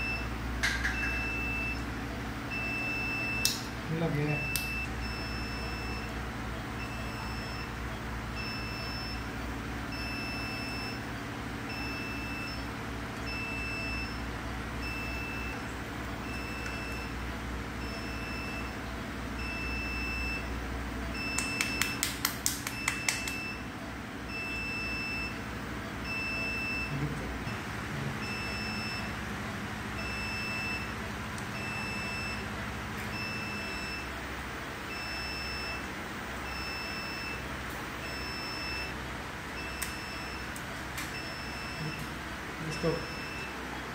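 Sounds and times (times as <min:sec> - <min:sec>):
low steady hum: 0:00.0 - 0:43.9
high electronic alarm beeping: 0:04.1 - 0:06.2, 0:06.8 - 0:07.8, 0:09.9 - 0:11.1, 0:19.4 - 0:22.0, 0:24.3 - 0:25.4, 0:28.2 - 0:29.2, 0:30.0 - 0:30.9, 0:31.6 - 0:32.4, 0:33.1 - 0:34.1, 0:34.9 - 0:35.8, 0:38.0 - 0:38.9, 0:39.6 - 0:40.5, 0:41.2 - 0:43.6.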